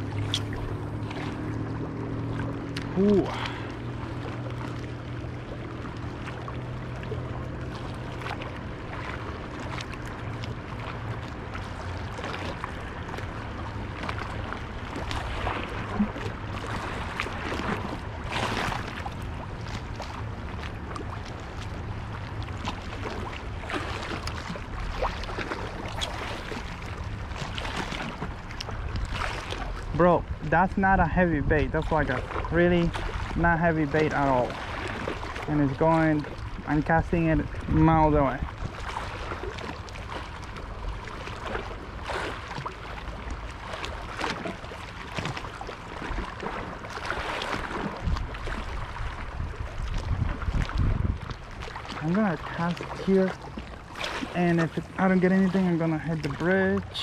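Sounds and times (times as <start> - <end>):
waves lapping against rocks: 0.0 - 57.0
wind rumble on microphone: 0.0 - 57.0.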